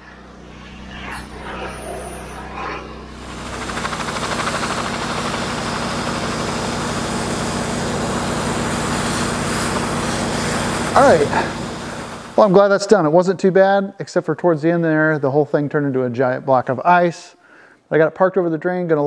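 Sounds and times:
tractor diesel engine running: 0:03.0 - 0:12.4.

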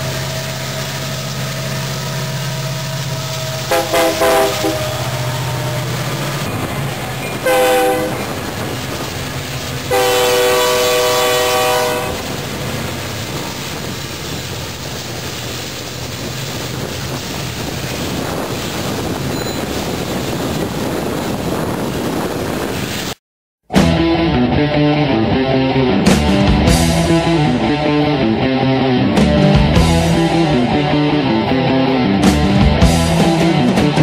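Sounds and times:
freight train rumbling past: 0:00.0 - 0:23.2, 0:25.4 - 0:34.0
locomotive air horn blasts: 0:03.4 - 0:06.0, 0:07.2 - 0:08.4, 0:09.9 - 0:12.4.

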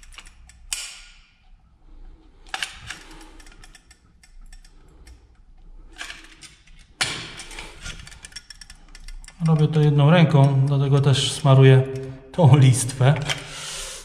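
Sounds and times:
adhesive clicks and scraping: 0:00.0 - 0:10.6.

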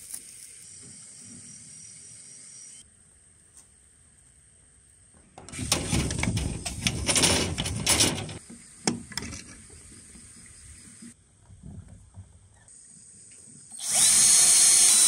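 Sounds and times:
steel wire rustling and clicking: 0:05.4 - 0:08.4.

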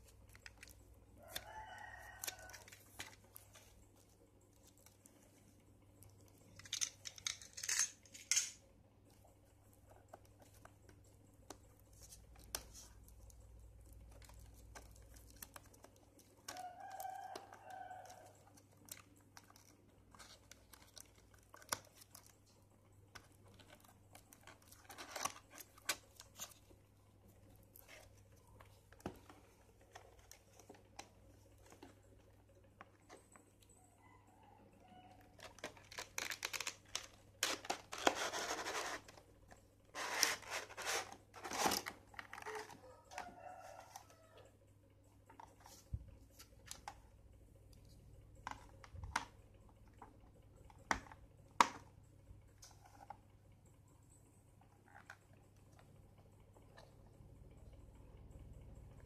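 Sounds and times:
shrink wrap crinkling and tearing: 0:10.0 - 0:32.2, 0:35.2 - 0:44.2.

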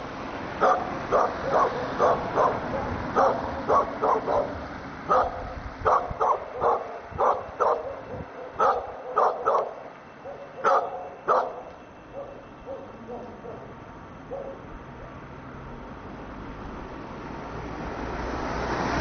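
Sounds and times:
dog barking: 0:00.6 - 0:13.7, 0:14.3 - 0:14.6.

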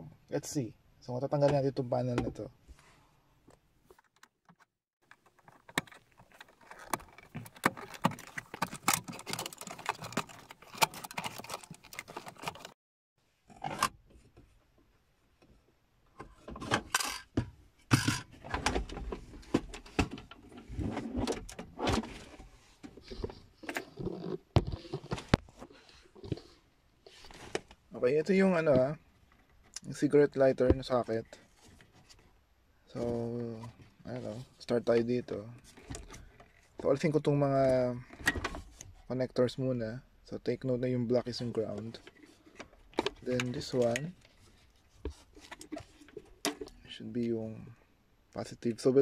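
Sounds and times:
knocks and scraping: 0:03.5 - 0:12.8, 0:16.2 - 0:27.8
plastic trim clicking and rattling: 0:04.0 - 0:12.7.

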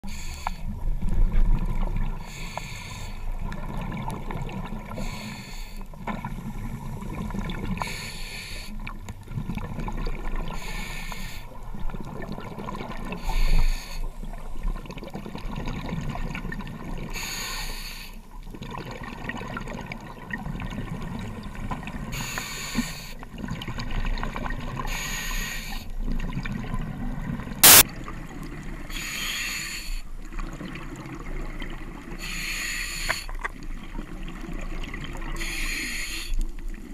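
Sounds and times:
sharp click: 0:27.6 - 0:27.8.

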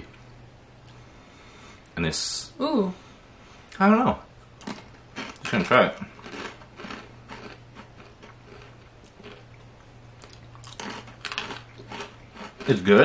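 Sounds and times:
faint steady hum: 0:00.0 - 0:13.0
pretzel crunching: 0:04.6 - 0:09.5, 0:10.2 - 0:13.0.

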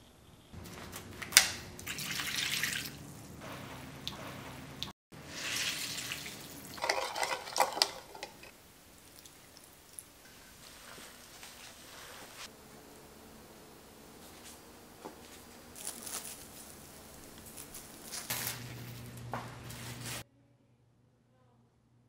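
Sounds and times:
water splashing into metal bowl: 0:01.4 - 0:03.0, 0:05.2 - 0:10.2.

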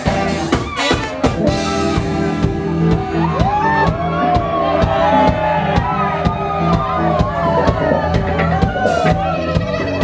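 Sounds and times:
saxophone: 0:00.0 - 0:03.4, 0:07.8 - 0:10.0
drums keeping a steady beat: 0:00.0 - 0:10.0
electric guitar: 0:00.0 - 0:10.0.

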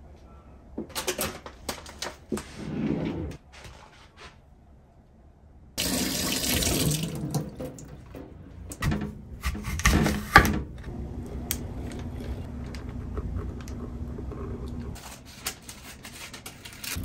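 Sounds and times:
tap water running into sink: 0:05.8 - 0:08.2.

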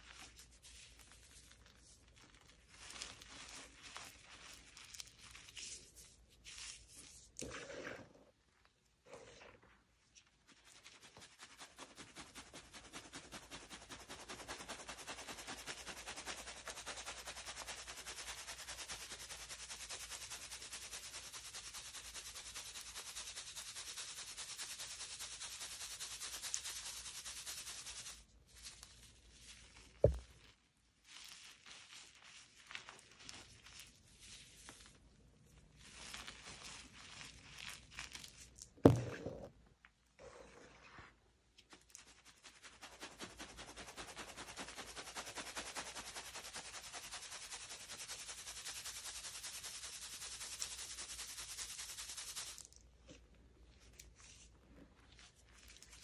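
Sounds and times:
dull thump: 0:30.0 - 0:30.2, 0:38.8 - 0:39.5.

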